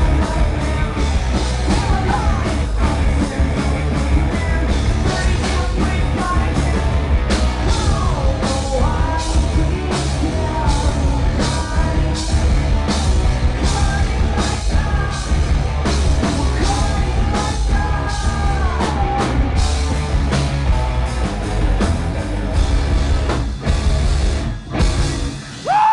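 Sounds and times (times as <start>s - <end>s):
man singing: 0.0s - 12.5s, 13.5s - 15.5s, 16.2s - 19.6s
bass guitar: 0.0s - 25.9s
drum kit: 0.0s - 25.9s
electric guitars: 0.0s - 25.9s.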